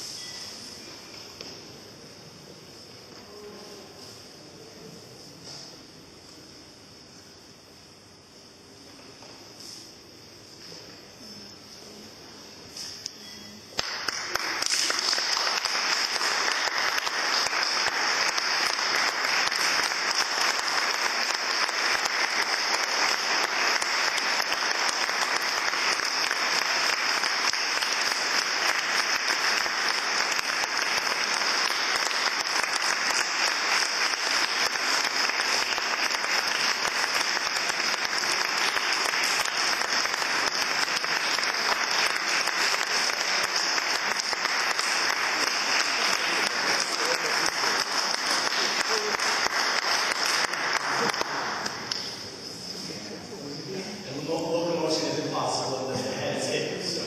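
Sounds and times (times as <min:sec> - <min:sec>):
audience applauding: 0:13.8 - 0:52.2.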